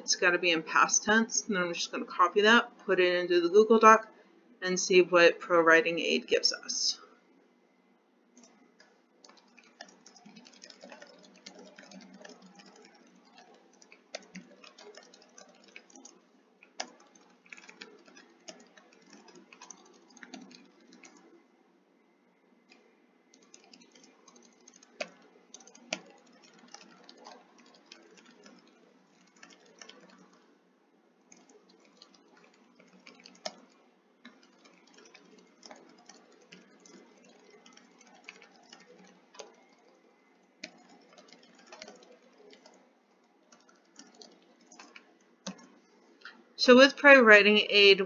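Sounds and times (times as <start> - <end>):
faint keyboard typing: 0.0 - 7.3, 8.3 - 21.5, 22.6 - 48.0.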